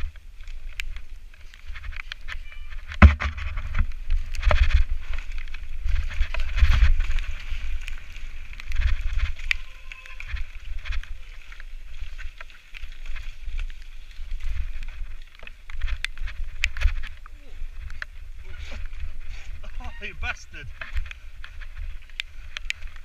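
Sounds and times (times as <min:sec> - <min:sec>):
wind rumbling on microphone: 0:00.0 - 0:23.0
bike rattling and knocking: 0:02.8 - 0:09.7.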